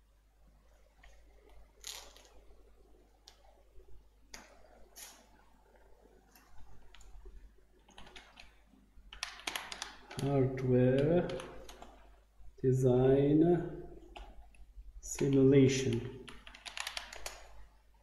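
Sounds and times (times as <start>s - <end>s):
keyboard keystrokes: 9.1s - 10.4s, 15.2s - 17.5s
computer mouse clicks: 15.2s - 17.5s.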